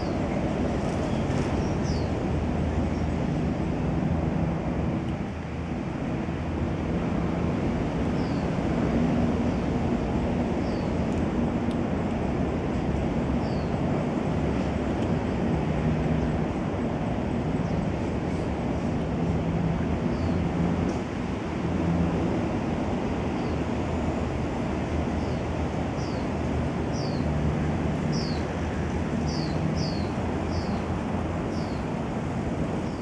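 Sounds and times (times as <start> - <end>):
outdoor background rumble: 0.0 - 33.0.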